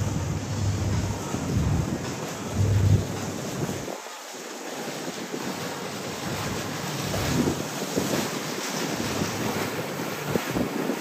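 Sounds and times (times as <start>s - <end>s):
wind buffeting microphone: 0.0s - 4.1s, 4.8s - 11.0s
water and waves rushing: 0.0s - 11.0s.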